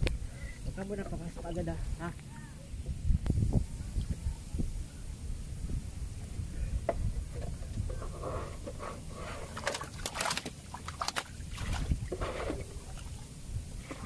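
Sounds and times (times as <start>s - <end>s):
water sloshing as person wades: 8.6s - 14.0s.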